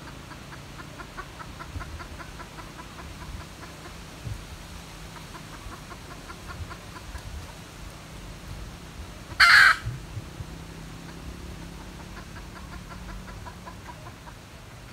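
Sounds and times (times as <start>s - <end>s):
junglefowl squawk: 9.3s - 9.9s.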